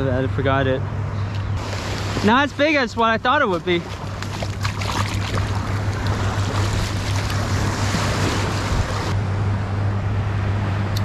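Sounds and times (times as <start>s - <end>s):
surf washing over sand: 1.6s - 9.2s
wind on microphone: 3.9s - 9.2s.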